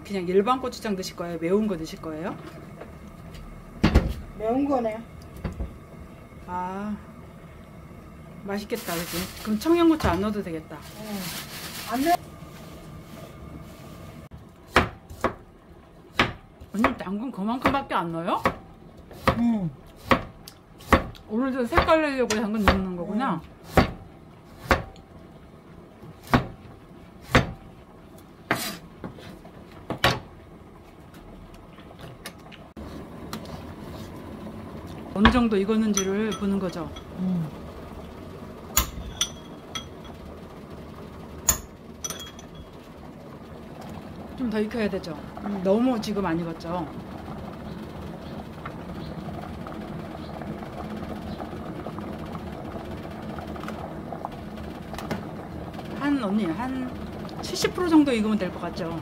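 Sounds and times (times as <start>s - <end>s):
potatoes boiling in water: 0.0s - 13.4s, 14.3s - 59.0s
knife chopping on cutting board: 14.7s - 15.4s, 16.2s - 17.0s, 18.4s - 21.2s, 23.7s - 24.0s, 24.6s - 24.9s, 27.3s - 27.6s.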